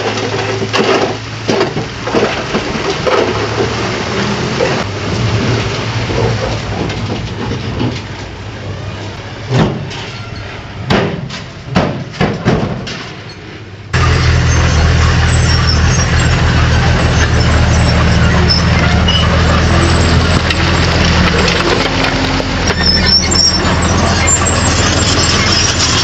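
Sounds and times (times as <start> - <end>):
heavy diesel machinery running: 0.0 - 26.0
sharp knocks and cracks: 10.9 - 13.2.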